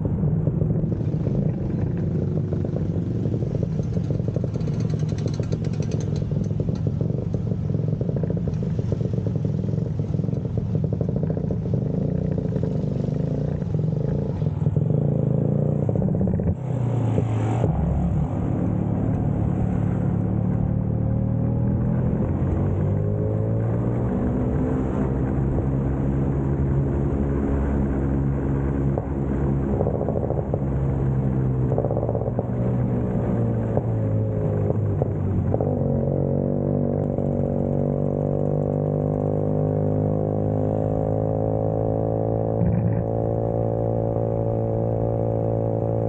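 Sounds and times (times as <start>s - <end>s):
scooter engine running: 0.0s - 16.6s.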